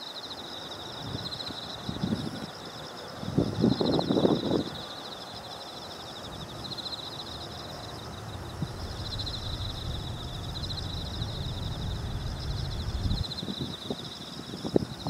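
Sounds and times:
insects trilling: 0.0s - 15.0s
low rumble: 6.3s - 13.6s.

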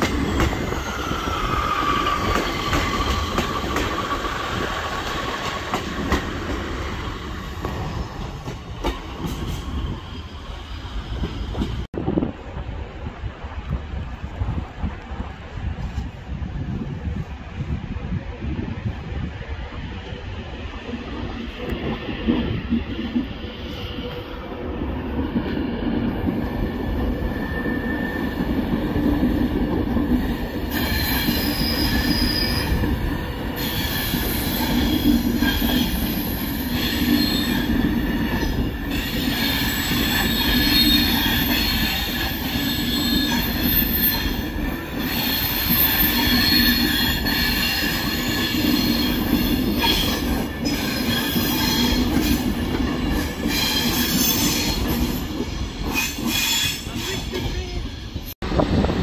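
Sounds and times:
train wheels squealing: 0.0s - 5.5s, 9.1s - 11.8s, 26.5s - 29.4s, 30.2s - 58.3s
train rumbling on rails: 0.0s - 59.0s.

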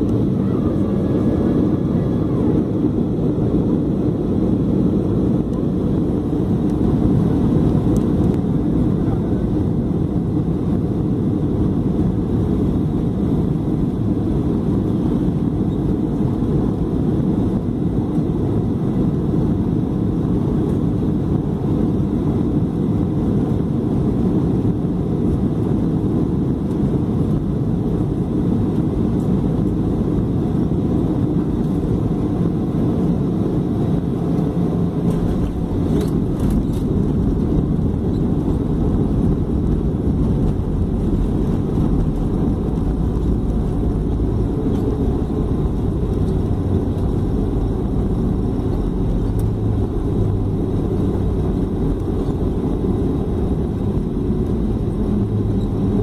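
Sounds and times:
aircraft engine and airflow roar: 0.0s - 56.0s
wheels rumbling on runway: 0.0s - 56.0s.

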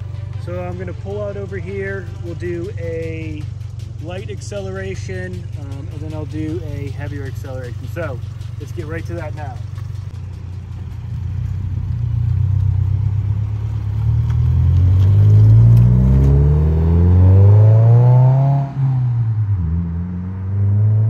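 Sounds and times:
car engine accelerating past: 10.8s - 21.0s.

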